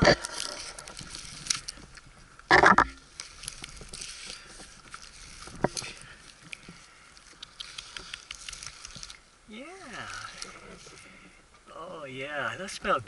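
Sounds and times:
gear scraping against bark: 0:00.0 - 0:13.0
sharp clicks: 0:07.3 - 0:09.0.

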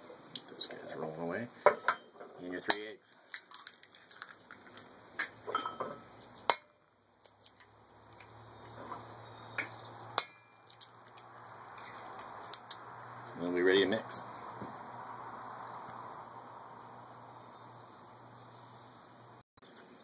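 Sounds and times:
eggs cracking on metal bowl: 0:02.7 - 0:05.4, 0:09.6 - 0:12.8.

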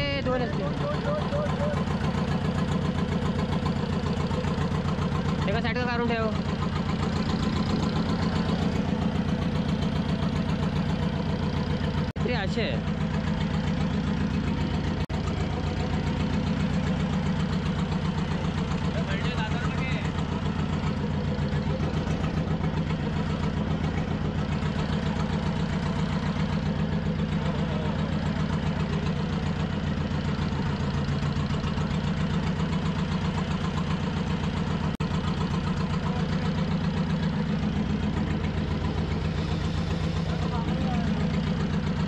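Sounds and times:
boat engine idling: 0:00.0 - 0:42.0.

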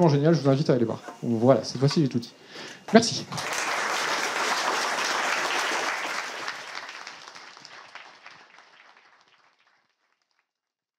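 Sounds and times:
audience applauding: 0:03.2 - 0:10.4.

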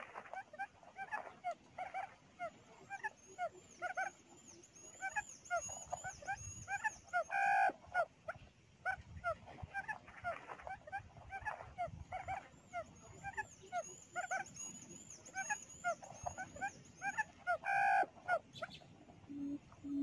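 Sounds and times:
quail held call: 0:00.0 - 0:04.2, 0:05.0 - 0:08.1, 0:08.8 - 0:20.0
quail chirping: 0:00.0 - 0:20.0
faint high wavering whistle: 0:04.5 - 0:07.7.

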